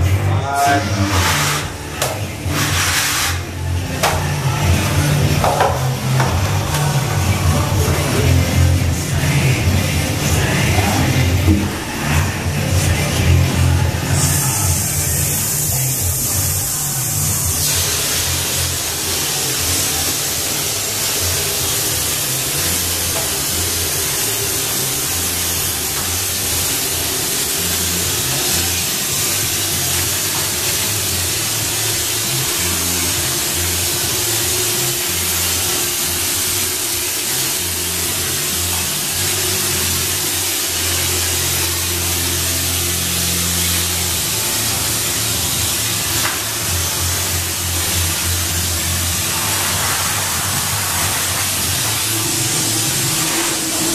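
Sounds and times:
music: 0.0 - 53.9
texture gun spraying air hiss: 0.9 - 3.7, 14.0 - 53.9.

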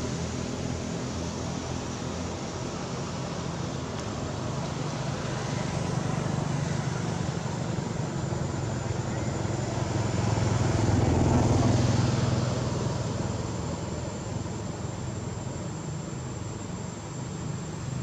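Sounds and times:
vehicle engine passing by: 4.6 - 14.1.

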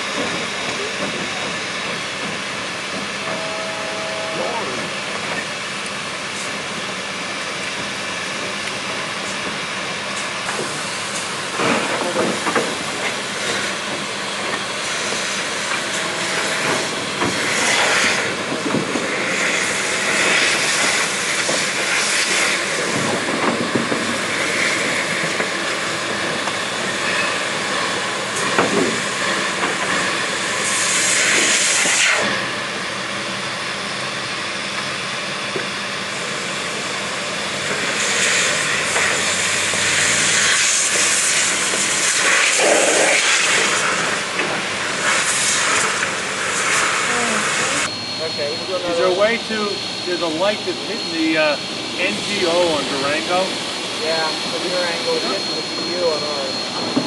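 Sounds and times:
steam hissing: 10.2 - 32.5, 36.2 - 57.0.

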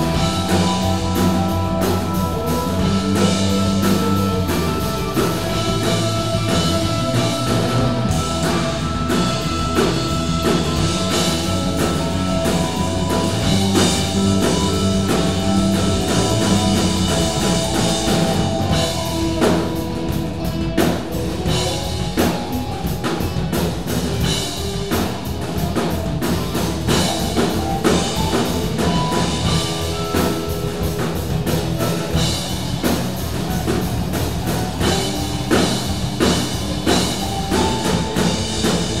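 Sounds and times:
drum kit: 0.0 - 39.0
electric bass: 0.0 - 39.0
electric guitars: 0.0 - 39.0
keyboard notes: 0.0 - 39.0.

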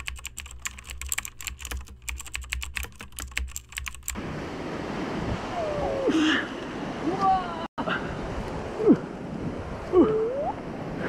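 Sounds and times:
keyboard typing clicks: 0.0 - 4.2
wind on microphone: 4.2 - 6.2
surf washing over rocks: 4.2 - 11.0.

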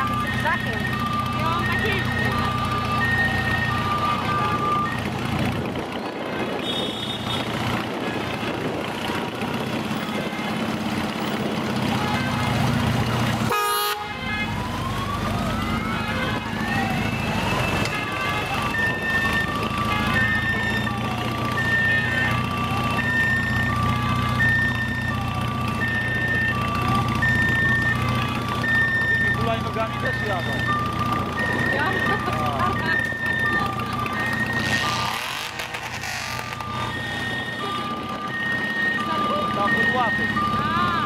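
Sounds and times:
emergency vehicle siren: 0.0 - 41.0
motorcycle engines running: 0.0 - 41.0
horn toot: 6.5 - 7.6, 13.5 - 14.4.

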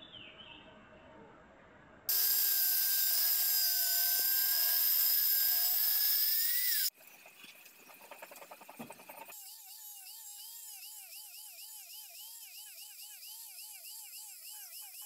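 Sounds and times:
circular saw whine: 2.1 - 6.9.

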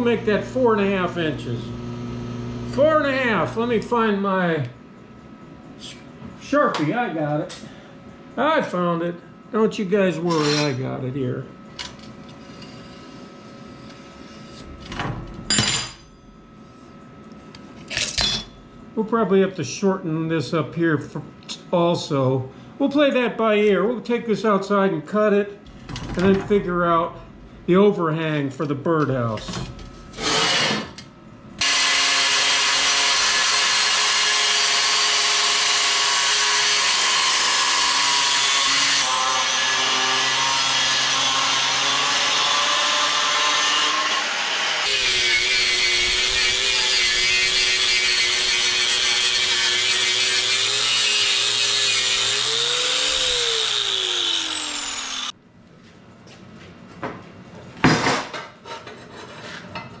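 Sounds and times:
angle grinder cutting steel: 31.6 - 55.3.

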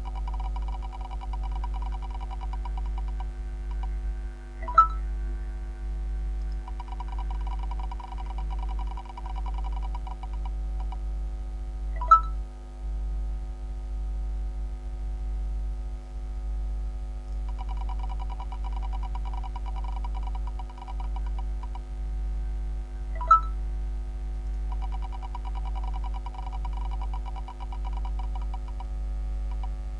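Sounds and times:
fortune wheel ticking: 0.0 - 4.0, 6.5 - 11.0, 17.5 - 21.9, 24.7 - 28.9
sharp ringing clicks: 0.0 - 4.0, 4.6 - 5.0, 6.5 - 11.0, 12.0 - 12.4, 17.5 - 21.8, 23.2 - 23.6, 24.7 - 28.9
electrical hum: 0.0 - 29.9.

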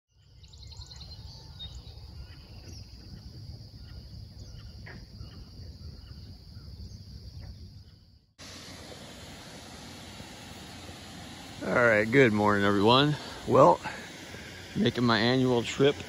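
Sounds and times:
bird chirps: 0.1 - 8.3.

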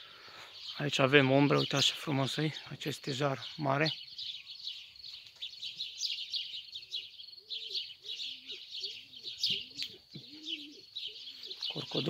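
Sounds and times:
songbirds chirping: 0.0 - 12.0
dove cooing: 6.8 - 12.0.

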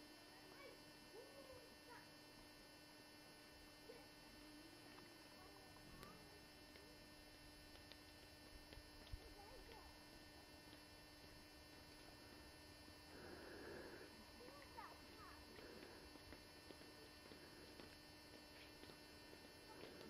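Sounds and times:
faint electrical hum: 0.0 - 20.0
faint clicks: 7.6 - 9.8.

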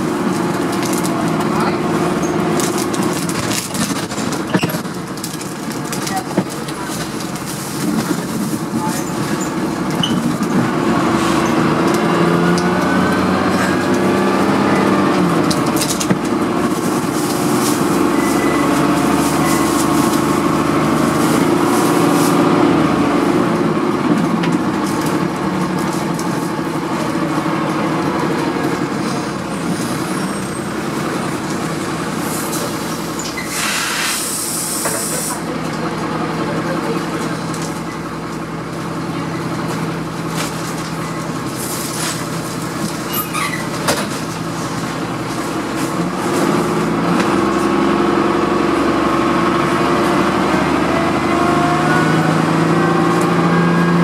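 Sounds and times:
bus engine revving: 0.0 - 54.0
compressed air hiss: 33.5 - 35.4.

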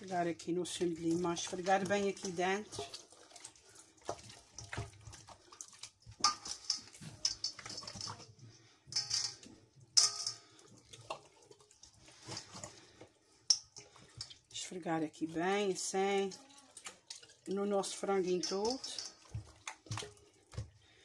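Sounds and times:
hands squelching raw chicken skin: 0.8 - 9.0, 16.0 - 21.0.

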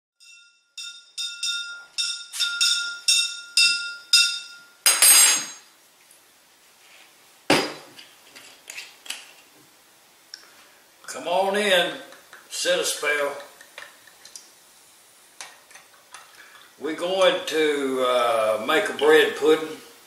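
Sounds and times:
small object ringing when struck: 0.2 - 5.7.

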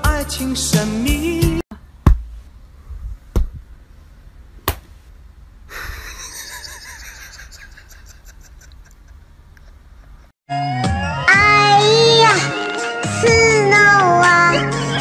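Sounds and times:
hands slapping a tray: 4.7 - 5.0.

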